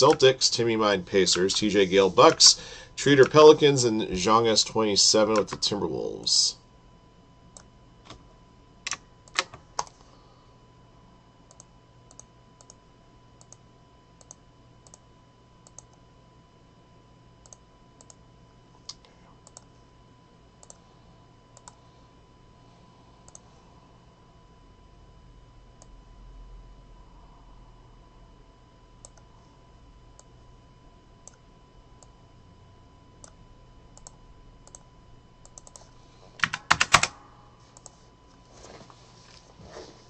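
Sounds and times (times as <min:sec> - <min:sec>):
faint steady hum: 0:00.0 - 0:40.0
keyboard and mouse clicks: 0:08.9 - 0:10.0, 0:35.4 - 0:35.8.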